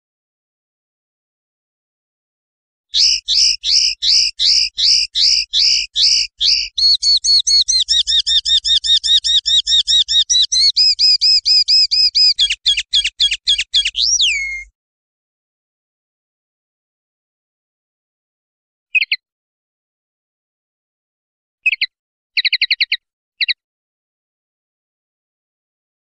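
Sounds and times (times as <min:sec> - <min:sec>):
linnet singing: 0:02.9 - 0:14.7, 0:19.0 - 0:19.2, 0:21.6 - 0:23.6.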